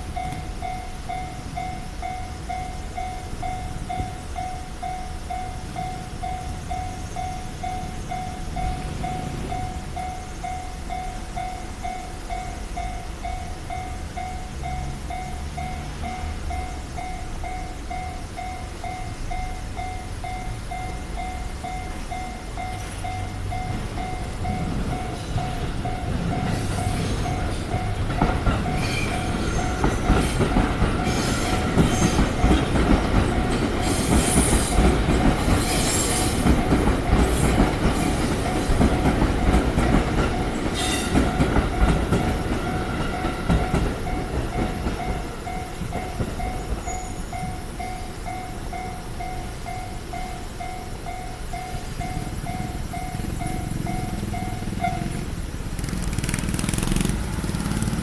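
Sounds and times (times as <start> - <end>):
electric train rumbling: 0.0 - 58.0
train wheels clacking: 21.1 - 48.4.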